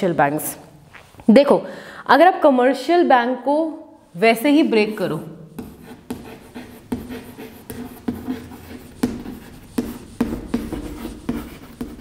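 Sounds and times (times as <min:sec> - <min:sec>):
chalk tapping and scraping on chalkboard: 0:05.5 - 0:12.0.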